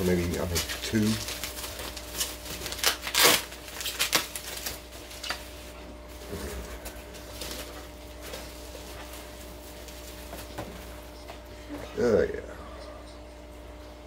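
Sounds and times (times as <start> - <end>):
packing material rustling: 0.0 - 11.2
low steady hum: 0.0 - 14.0.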